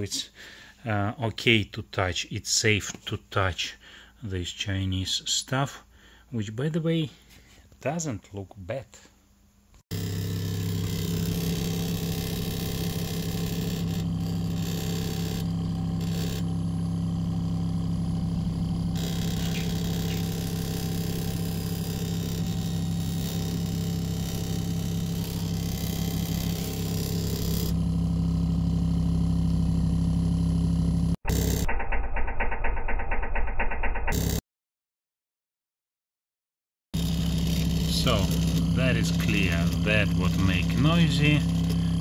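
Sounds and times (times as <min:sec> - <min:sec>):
refrigerator compressor humming: 0:09.9 - 0:31.6, 0:37.0 - 0:42.0.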